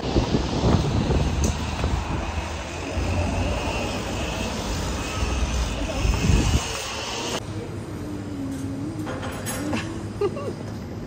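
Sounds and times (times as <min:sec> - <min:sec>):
wind buffeting a microphone: 0:00.0 - 0:03.1, 0:05.7 - 0:06.9.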